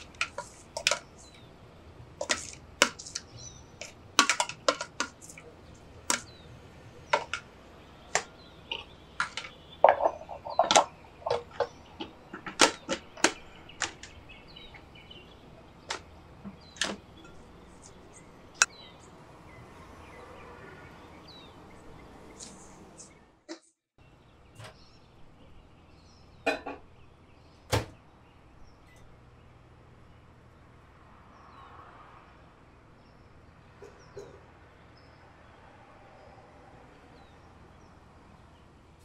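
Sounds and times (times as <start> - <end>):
spatula scraping plastic bowl: 2.2 - 5.4, 8.2 - 14.0.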